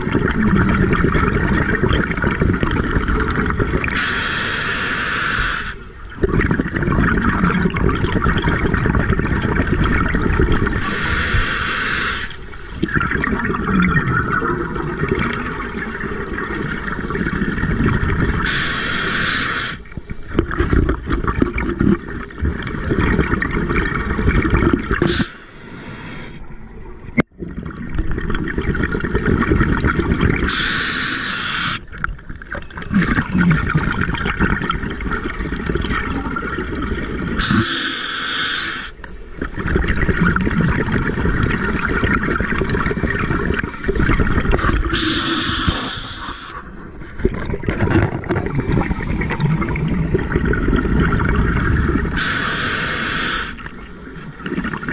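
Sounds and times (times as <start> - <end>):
regulator inhale hiss: 4.0 - 5.9, 10.8 - 12.8, 18.4 - 20.2, 25.1 - 26.5, 30.5 - 31.8, 37.4 - 39.2, 45.0 - 46.6, 48.7 - 49.6, 51.6 - 53.7.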